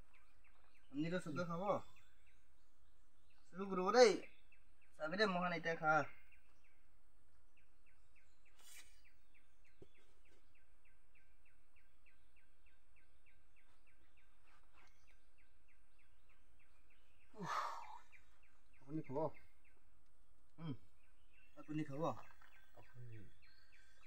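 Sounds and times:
soft rustle: 0:08.4 - 0:10.6.

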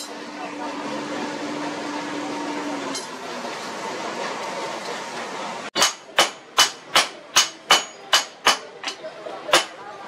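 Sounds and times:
hammer ringing on anvil: 0:05.8 - 0:09.0.

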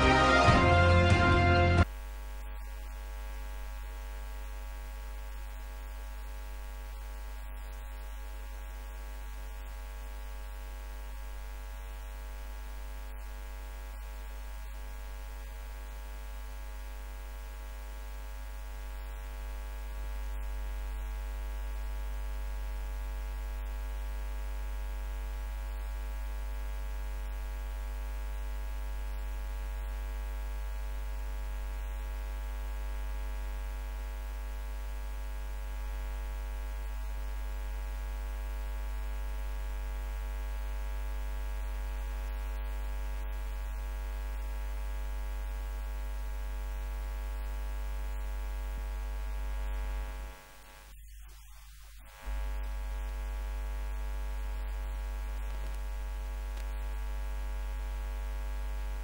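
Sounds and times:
electrical mains hum: 0:00.0 - 0:59.0.

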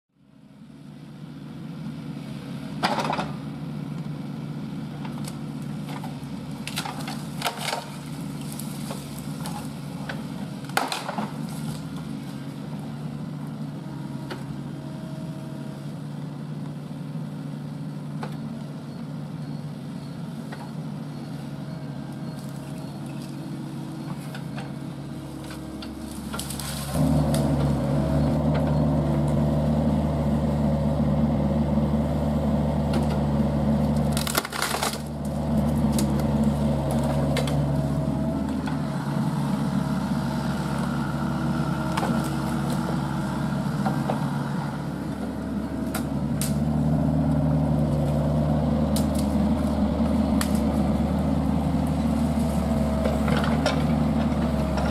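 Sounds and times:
diesel engine running: 0:00.2 - 0:54.9
wood cracking and snapping: 0:06.6 - 0:09.7, 0:25.9 - 0:27.7, 0:33.8 - 0:37.7, 0:48.9 - 0:49.7, 0:50.3 - 0:50.8.

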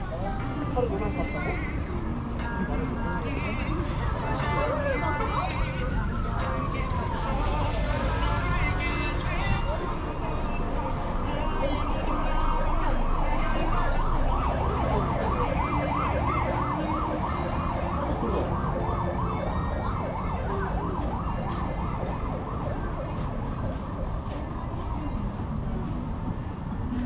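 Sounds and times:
street noise: 0:00.0 - 0:27.0
siren in yelp mode: 0:11.7 - 0:24.3.

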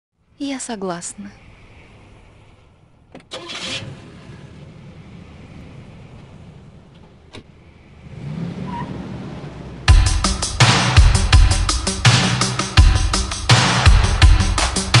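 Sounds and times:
car engine rumble: 0:00.2 - 0:15.0
car door shutting: 0:03.1 - 0:04.2.

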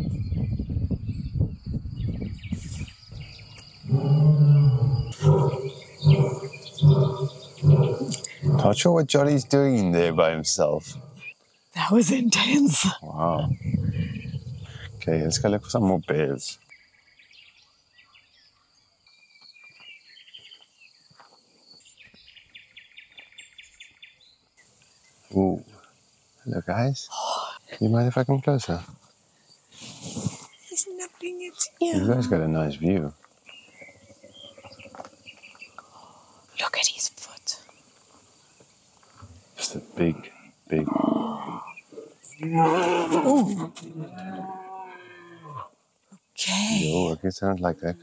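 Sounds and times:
bird chirps: 0:00.0 - 0:25.9, 0:29.3 - 0:38.7, 0:40.9 - 0:42.6
bird trill: 0:02.2 - 0:08.8
lion roaring: 0:03.8 - 0:11.3, 0:13.1 - 0:15.7, 0:40.7 - 0:45.7.

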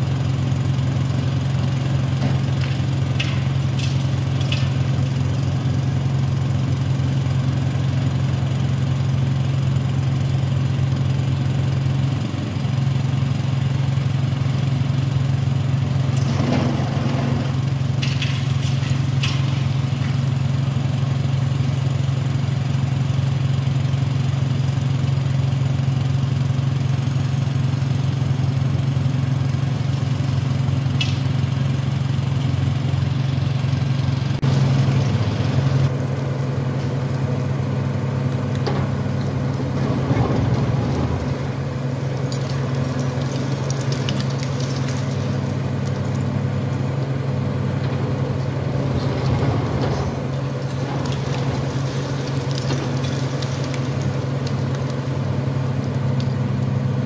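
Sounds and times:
diesel engine running: 0:00.0 - 0:57.0
concrete crunching: 0:38.3 - 0:56.4.

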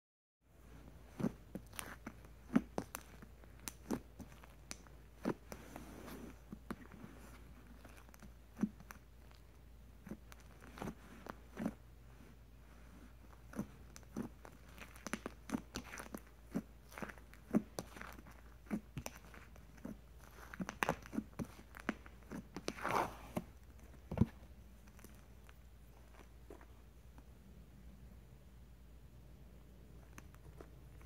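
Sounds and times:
slime popping and crackling: 0:01.1 - 0:05.6, 0:13.5 - 0:23.2.

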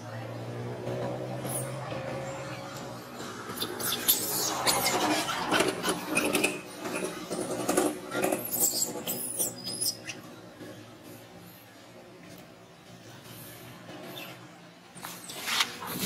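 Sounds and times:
baby macaque squealing: 0:03.6 - 0:06.6, 0:08.4 - 0:10.2.

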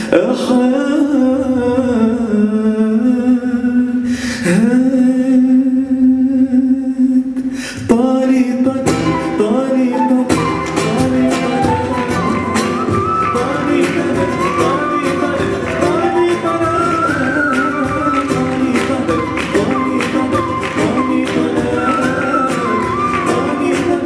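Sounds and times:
acoustic guitar: 0:00.0 - 0:24.0
person singing ornamented notes: 0:08.9 - 0:24.0.

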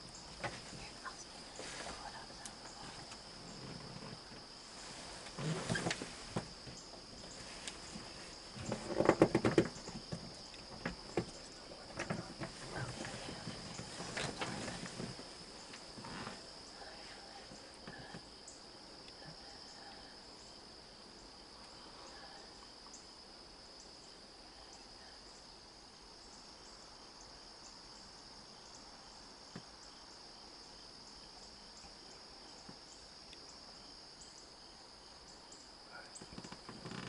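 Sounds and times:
high-pitched insect chorus: 0:00.0 - 0:37.0
faint ticks: 0:08.6 - 0:16.2, 0:32.6 - 0:33.5, 0:36.0 - 0:37.0.

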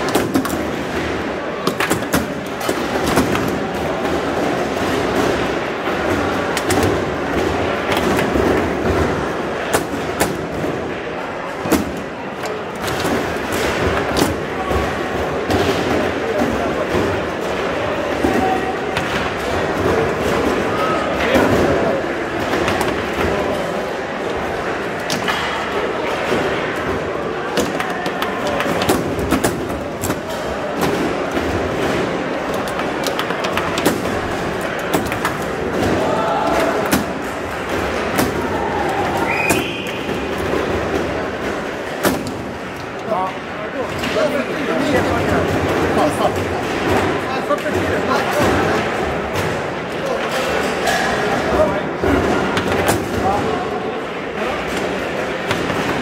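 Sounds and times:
foosball ball clacks: 0:00.0 - 0:23.7, 0:24.3 - 0:43.1, 0:54.5 - 0:56.0.

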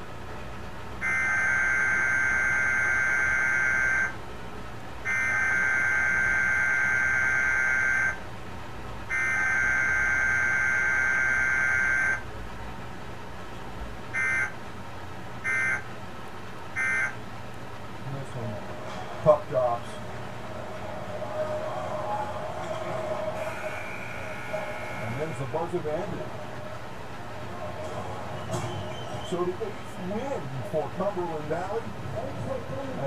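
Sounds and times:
short data bursts: 0:23.0 - 0:25.7
raspy two-tone data bursts: 0:23.4 - 0:25.7.

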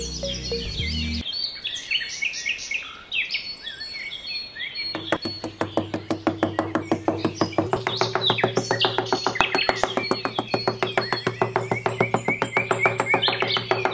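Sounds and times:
birds chirping: 0:00.0 - 0:13.9
fast ticking beat: 0:05.0 - 0:13.9.

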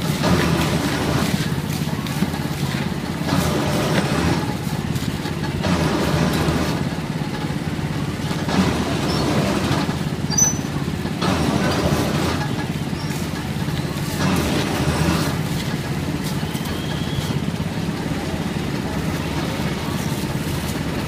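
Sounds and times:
motorbike engines running: 0:00.0 - 0:21.0
street traffic engine rumble: 0:00.0 - 0:21.0.

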